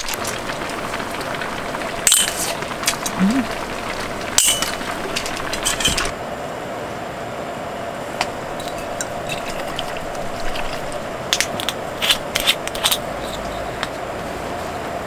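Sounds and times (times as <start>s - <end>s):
steady hum: 0.0s - 12.4s
chopsticks and dishes clinking: 4.4s - 6.1s.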